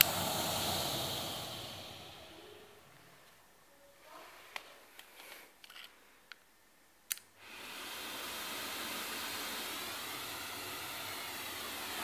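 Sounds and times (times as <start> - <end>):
vacuum air rushing: 0.0 - 3.0, 7.4 - 12.0.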